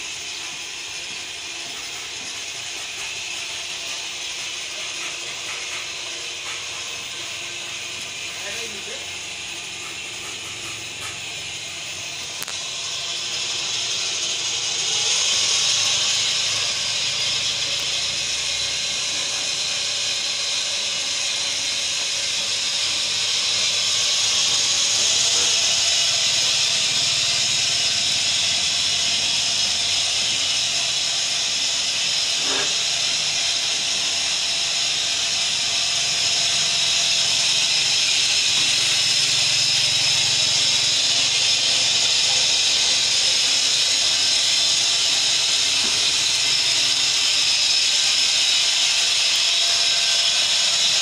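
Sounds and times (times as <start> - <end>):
machine motor whirring: 0.0 - 51.0.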